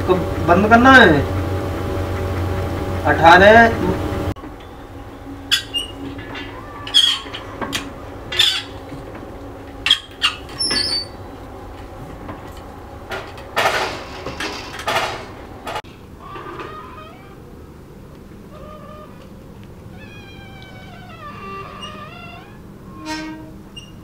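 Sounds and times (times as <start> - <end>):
hand-cranked winch squeaking: 2.2 - 11.5, 19.9 - 24.0.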